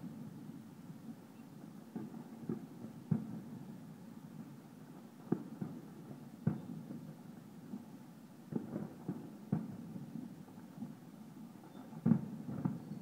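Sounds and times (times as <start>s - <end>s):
distant fireworks bangs: 1.9s - 3.7s, 5.2s - 7.9s, 8.5s - 11.0s, 11.6s - 13.0s.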